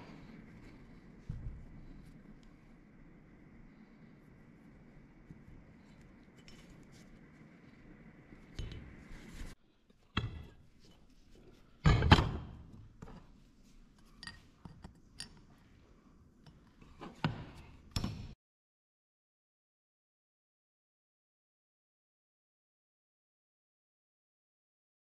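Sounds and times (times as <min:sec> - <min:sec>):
metal parts clunking on workbench: 0:11.8 - 0:12.5.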